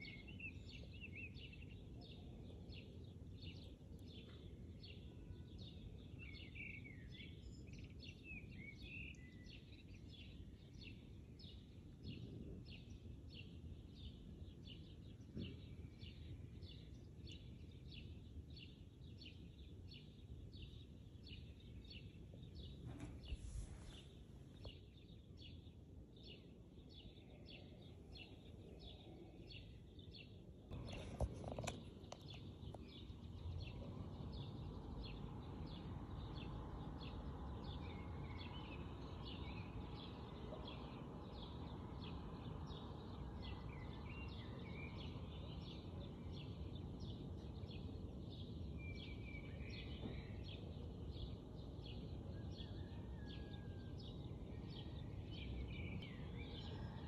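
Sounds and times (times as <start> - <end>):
small birds chirping: 0.0 - 53.2
low rushing noise: 22.8 - 24.6.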